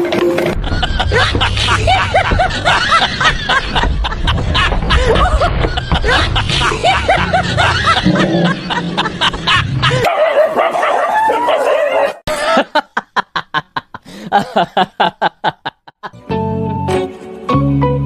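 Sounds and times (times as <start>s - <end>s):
dog barking and yelping: 10.0s - 12.2s.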